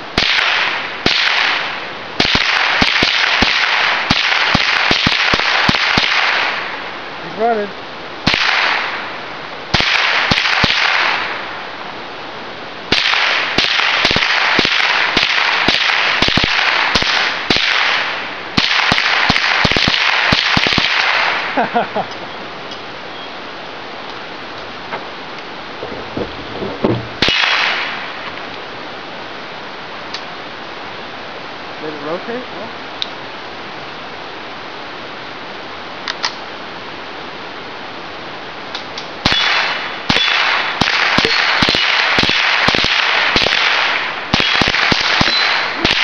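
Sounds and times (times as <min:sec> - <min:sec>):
rifle shots firing rapidly: 0:00.2 - 0:06.7, 0:08.2 - 0:09.0, 0:09.7 - 0:11.4, 0:12.9 - 0:21.5, 0:27.2 - 0:28.0, 0:39.2 - 0:46.0.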